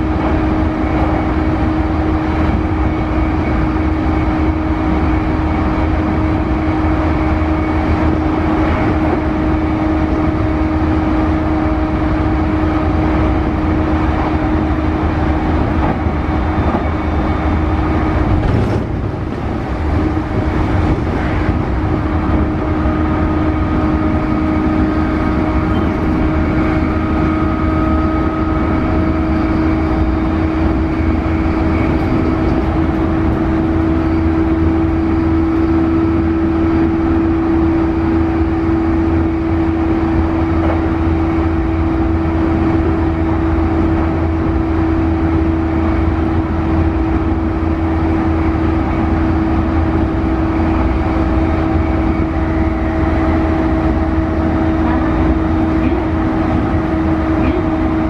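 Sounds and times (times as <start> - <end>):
traction motor hum: 0.0 - 58.0
train wheels rumbling on rail: 0.0 - 58.0.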